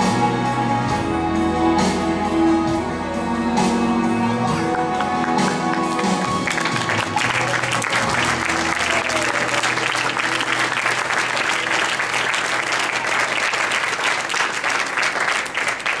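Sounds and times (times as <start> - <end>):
backing music: 0.0 - 16.0
audience applauding: 4.5 - 16.0.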